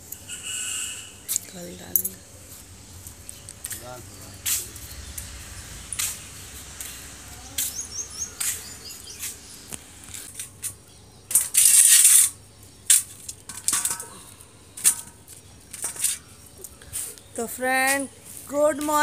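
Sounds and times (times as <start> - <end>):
loud hissing rustle: 0.9 - 10.8, 11.4 - 13.4, 15.8 - 19.0
high bird chirps: 2.5 - 10.3.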